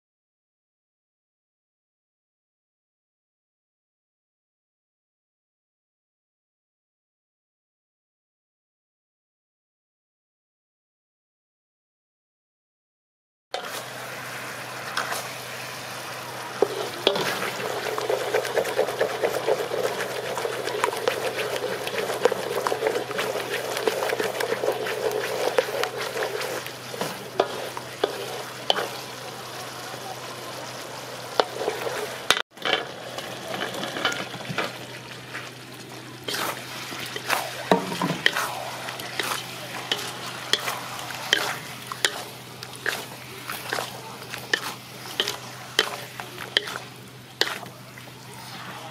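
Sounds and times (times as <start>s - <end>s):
spatula scraping wok: 13.6s - 35.6s, 36.2s - 48.9s
sauce sizzling: 13.6s - 48.9s.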